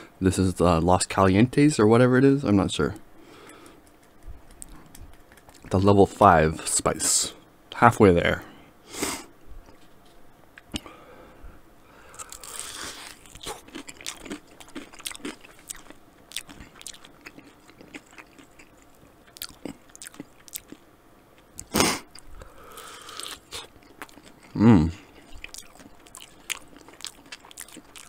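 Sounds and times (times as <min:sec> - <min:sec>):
chewing and biting chicken wing: 0:12.1 - 0:20.8, 0:21.6 - 0:28.0.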